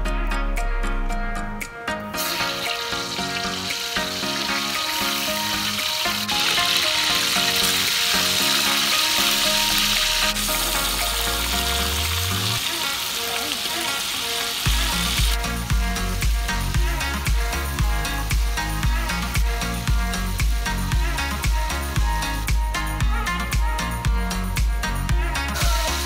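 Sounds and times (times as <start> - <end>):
background music with bass beat: 0.0 - 13.1, 14.7 - 26.0
quail frying in a wok: 2.2 - 21.2.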